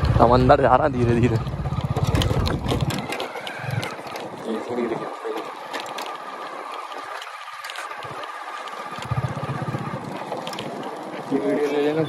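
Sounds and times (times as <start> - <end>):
outdoor background noise: 0.0 - 12.0
small engine pulsing: 0.0 - 12.0.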